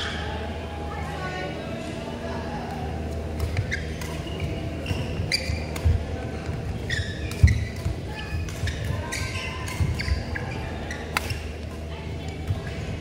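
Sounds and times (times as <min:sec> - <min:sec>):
low hall hum: 0:00.0 - 0:13.0
shoes thudding and squeaking: 0:03.4 - 0:06.0, 0:06.7 - 0:11.5.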